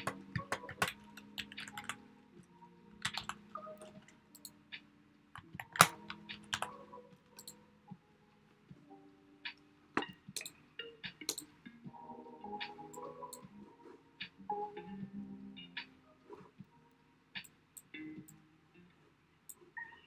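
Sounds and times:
computer keyboard typing: 0:00.0 - 0:02.0, 0:03.0 - 0:04.6, 0:05.4 - 0:07.6, 0:11.2 - 0:11.5
soft background music: 0:00.0 - 0:20.0.

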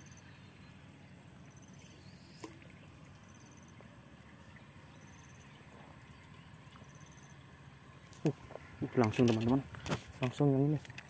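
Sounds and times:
insect pulsed chirps: 0:00.0 - 0:08.1.

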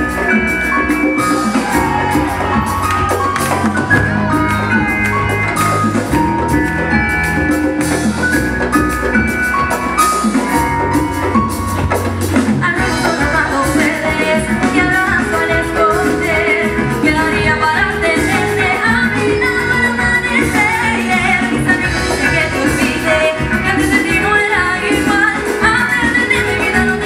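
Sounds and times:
live pop band playing: 0:00.0 - 0:27.0
woman singing: 0:12.4 - 0:27.0.

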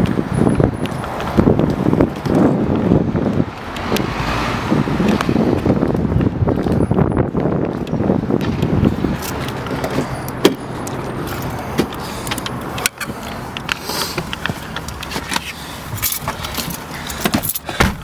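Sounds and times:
handling clicks and knocks: 0:05.0 - 0:18.0
car keys jangling: 0:09.2 - 0:17.8.

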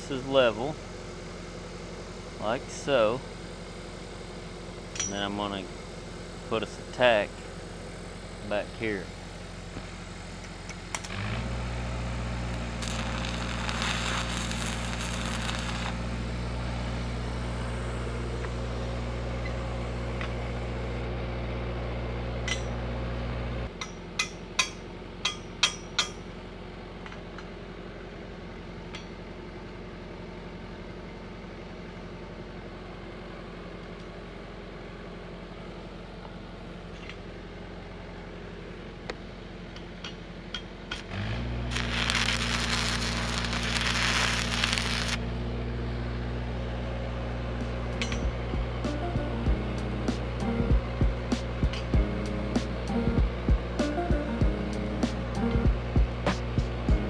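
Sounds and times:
welding machine hum: 0:09.2 - 0:21.9, 0:40.9 - 0:57.0
welding arc crackling: 0:11.0 - 0:19.1, 0:41.1 - 0:45.2.

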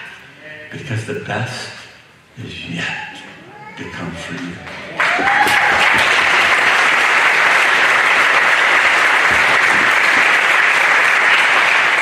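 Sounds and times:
crowd applauding: 0:04.1 - 0:12.0.

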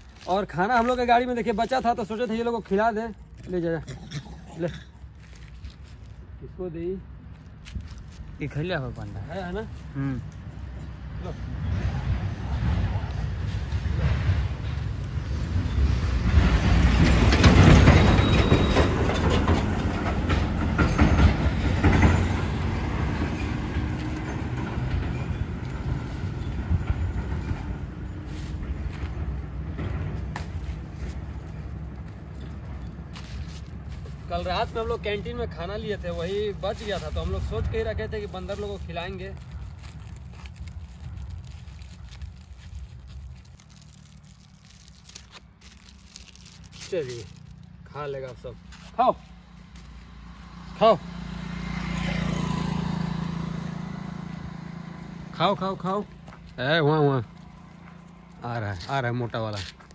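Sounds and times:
food wrappers crinkling: 0:00.0 - 0:03.6, 0:05.0 - 0:06.2, 0:07.3 - 0:09.9, 0:36.2 - 0:47.8
heavy vehicle passing: 0:10.8 - 0:43.9, 0:48.6 - 0:59.5.

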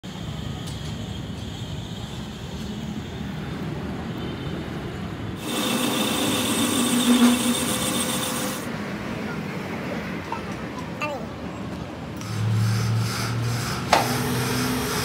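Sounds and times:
lathe cutting steel: 0:05.4 - 0:08.7, 0:12.2 - 0:15.0.

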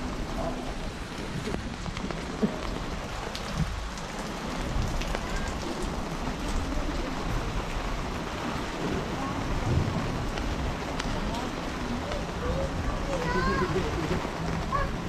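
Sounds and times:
rain on wet pavement: 0:00.0 - 0:15.0
low rumble: 0:06.0 - 0:12.9.

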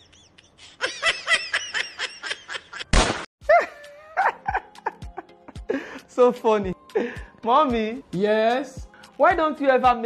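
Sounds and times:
person laughing: 0:00.0 - 0:06.1.

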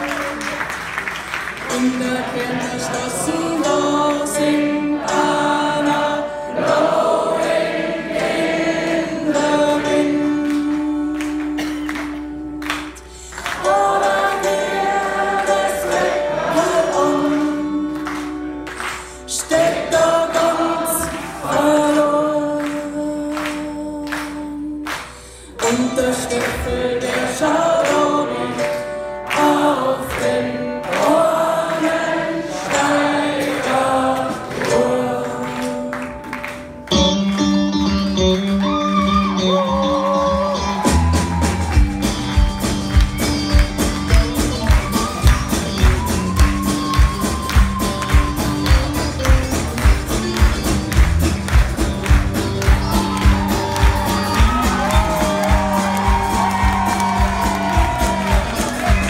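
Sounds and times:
live band playing: 0:00.0 - 0:59.0
choir singing held notes: 0:01.7 - 0:11.3, 0:13.4 - 0:22.4, 0:26.0 - 0:36.1.

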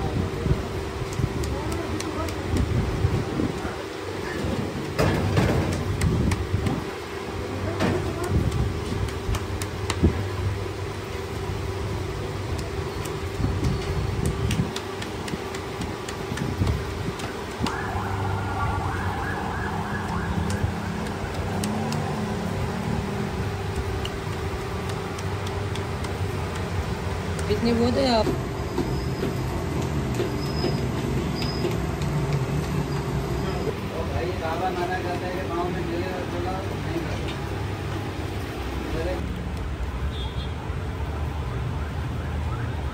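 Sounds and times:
traffic hum: 0:00.0 - 0:42.9
sharp clicks: 0:20.0 - 0:22.1, 0:23.7 - 0:26.7.

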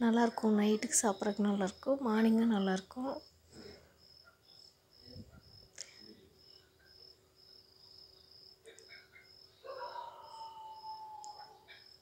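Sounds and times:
cricket chirping: 0:00.1 - 0:12.0
click: 0:11.2 - 0:11.5.

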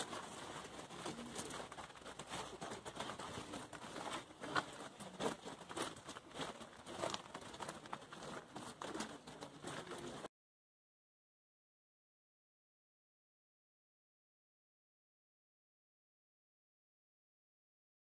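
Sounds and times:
rustling and scuffing: 0:00.0 - 0:10.3.

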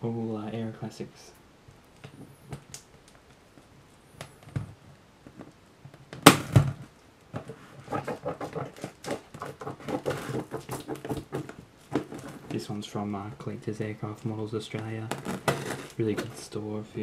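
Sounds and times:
loud thump on cardboard box: 0:06.2 - 0:06.8
scratching and rustling on cardboard: 0:07.4 - 0:12.8, 0:14.8 - 0:16.6.

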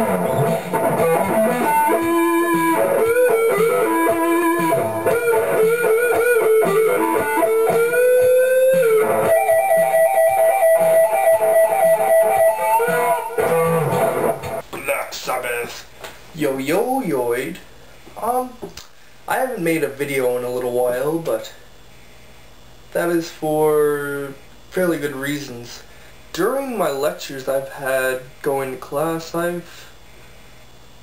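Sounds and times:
electric guitar lead line: 0:00.0 - 0:14.6.

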